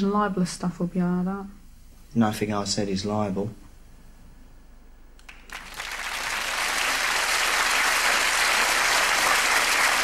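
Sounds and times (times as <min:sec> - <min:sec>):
audience applause: 0:05.3 - 0:10.0.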